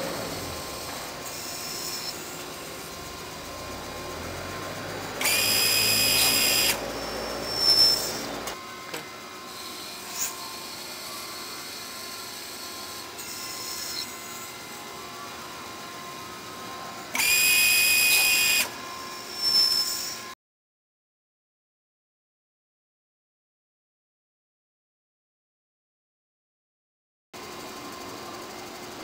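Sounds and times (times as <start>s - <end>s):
lathe running: 0.0s - 20.3s
high whining squeal of cutting: 0.0s - 20.4s
short sharp screech: 0.1s - 2.6s, 5.2s - 8.6s, 9.5s - 11.3s, 13.2s - 14.4s, 17.2s - 20.4s.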